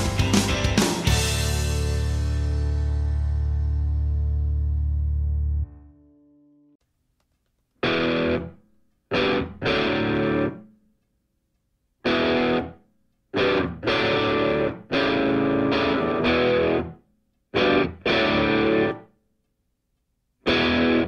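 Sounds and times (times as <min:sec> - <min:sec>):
distorted electric guitar chords: 0:00.0 - 0:06.8, 0:07.8 - 0:10.7, 0:12.0 - 0:12.8, 0:13.4 - 0:17.0, 0:17.6 - 0:19.1, 0:20.5 - 0:21.0.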